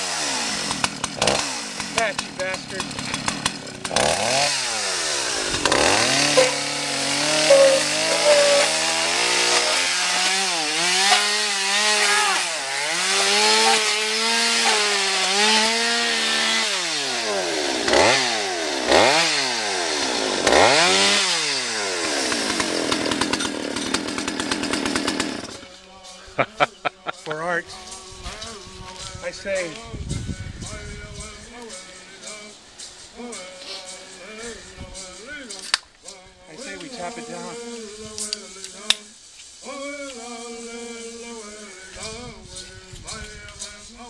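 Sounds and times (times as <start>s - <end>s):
chainsaw cutting: 0.0s - 25.7s, 36.6s - 37.8s.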